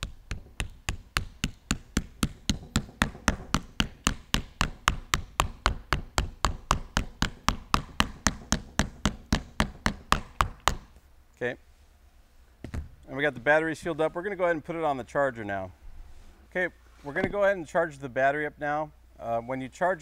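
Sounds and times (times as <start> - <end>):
mallet tapping plastic: 0.0 - 10.9.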